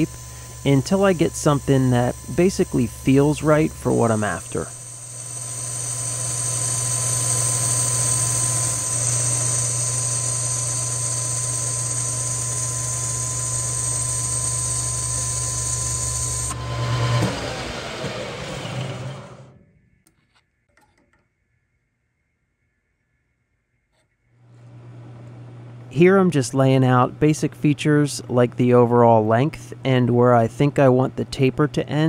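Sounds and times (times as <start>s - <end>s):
hiss of metal cutting: 0.0s - 16.5s
lathe motor hum: 0.0s - 19.6s.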